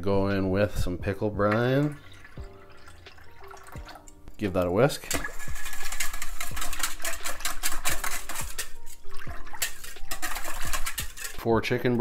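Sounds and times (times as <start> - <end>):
soft background music: 0.0 - 12.0
liquid sloshing: 1.4 - 11.4
whisk beating in a metal bowl: 4.8 - 11.8.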